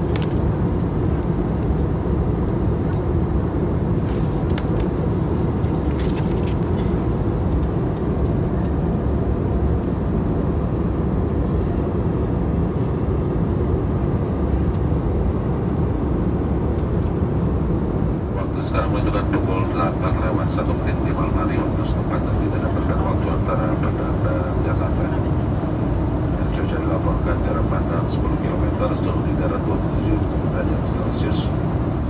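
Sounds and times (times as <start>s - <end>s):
airplane cabin engine roar: 0.0s - 32.0s.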